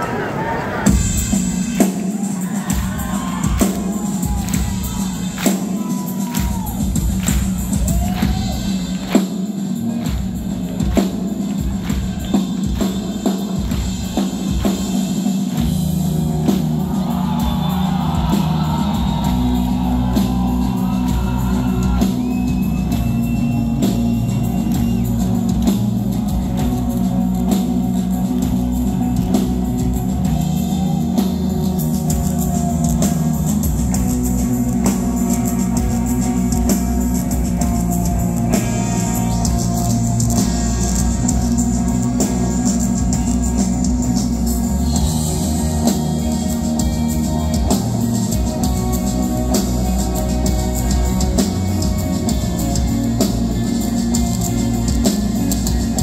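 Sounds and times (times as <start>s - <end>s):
loud live rock band: 0.0s - 56.0s.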